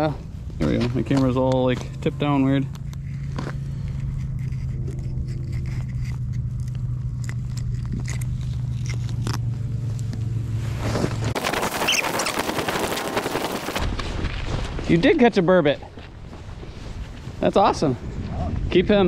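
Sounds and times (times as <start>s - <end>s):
low hum: 0.0s - 19.0s
wind buffeting microphone: 15.8s - 19.0s.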